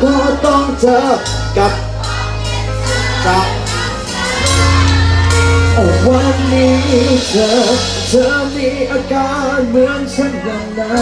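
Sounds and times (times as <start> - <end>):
live rock band playing: 0.0 - 11.0.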